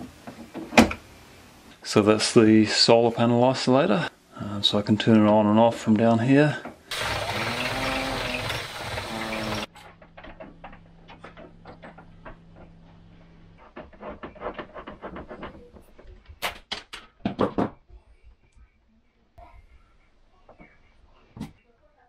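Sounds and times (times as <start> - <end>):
faint low hum: 17.8 - 22.0.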